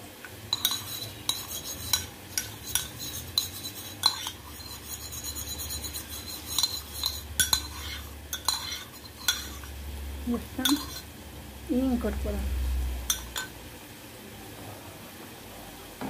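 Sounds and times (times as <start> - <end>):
metal spoon clinking ceramic bowl: 0.5 - 4.4, 6.2 - 9.7, 10.6 - 11.0, 13.1 - 13.5.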